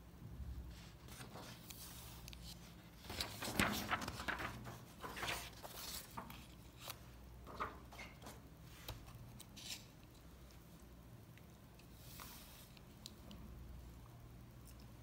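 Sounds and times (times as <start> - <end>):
paper rustling: 0.7 - 10.2.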